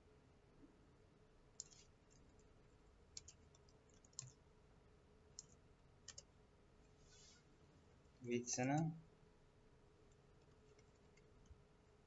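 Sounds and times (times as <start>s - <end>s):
faint steady hum: 0.0s - 12.0s
computer mouse clicks: 1.6s - 2.4s, 3.1s - 4.4s, 5.4s - 6.3s, 10.1s - 11.6s.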